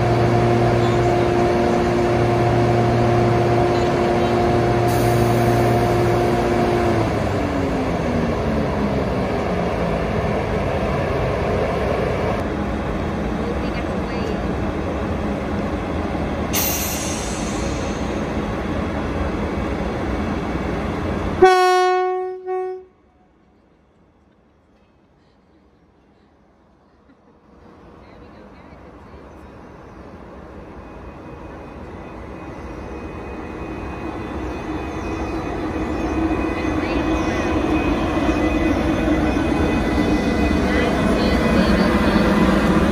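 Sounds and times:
locomotive machinery humming: 0:00.0 - 0:42.9.

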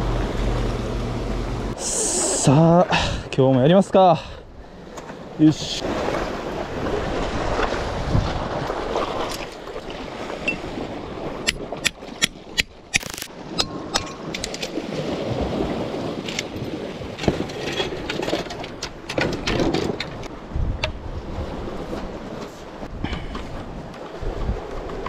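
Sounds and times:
sea waves on rocky shore: 0:00.0 - 0:25.0
wind on microphone: 0:05.8 - 0:12.0, 0:19.1 - 0:25.0.

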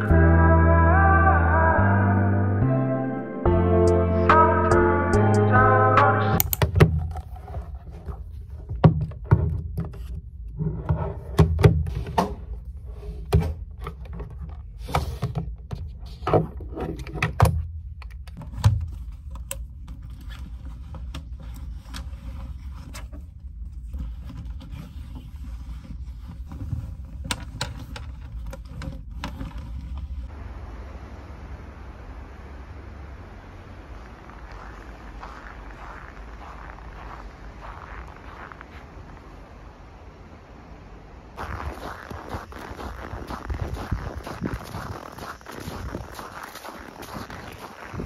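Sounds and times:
low steady hum: 0:16.9 - 0:48.0.

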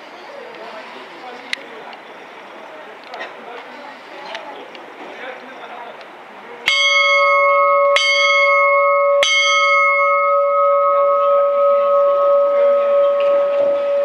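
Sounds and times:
large bell ringing: 0:06.7 - 0:14.0.

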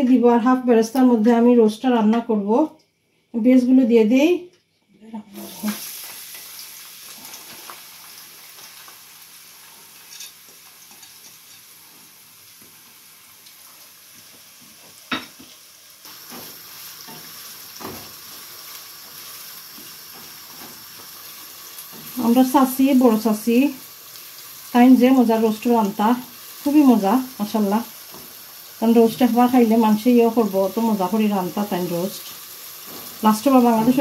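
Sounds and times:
onions sizzling in hot oil: 0:05.3 - 0:34.0
spatula stirring onions: 0:14.1 - 0:25.6.

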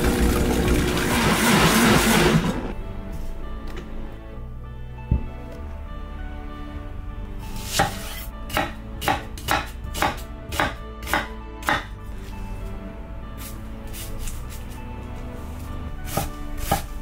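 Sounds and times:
knife chopping onion on wooden board: 0:07.7 - 0:11.9, 0:16.1 - 0:17.0.

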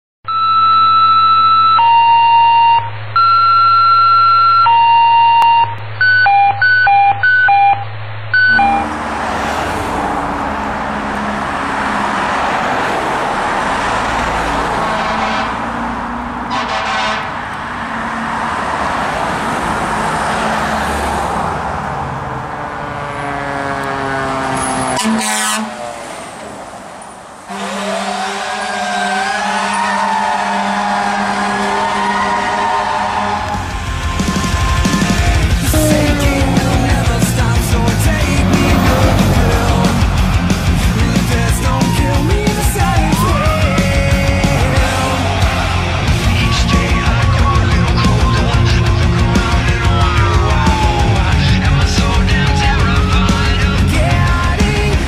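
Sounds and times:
two-tone electronic siren: 0:00.2 - 0:12.6, 0:14.4 - 0:17.2, 0:22.3 - 0:26.0, 0:27.5 - 0:43.8
siren rising and falling: 0:00.3 - 0:14.9, 0:17.9 - 0:26.0, 0:28.7 - 0:44.0
fire truck engine and road noise: 0:00.3 - 0:55.0.

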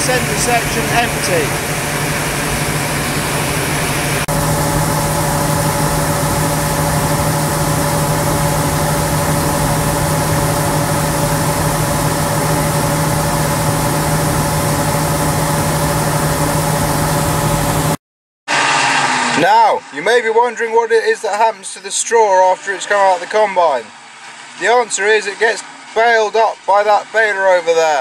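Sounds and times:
machinery humming: 0:00.0 - 0:18.0.

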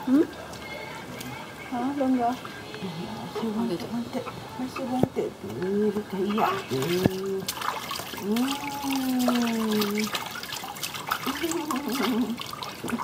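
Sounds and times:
water splashing in a bathtub: 0:04.6 - 0:13.0
baby vocalizing: 0:06.2 - 0:07.2.

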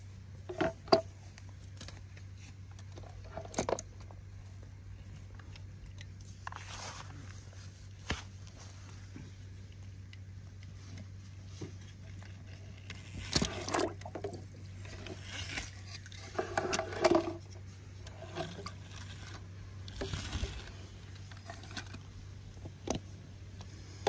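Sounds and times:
steady low hum: 0:00.0 - 0:24.0
toy trucks scraping and clicking: 0:11.7 - 0:24.0.

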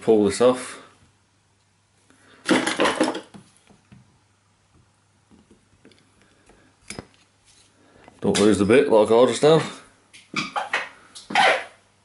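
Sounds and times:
rustling scrape: 0:07.2 - 0:08.0.

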